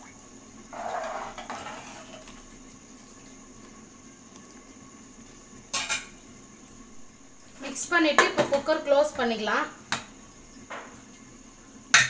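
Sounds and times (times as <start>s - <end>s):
ladle stirring water: 0.6s - 4.8s.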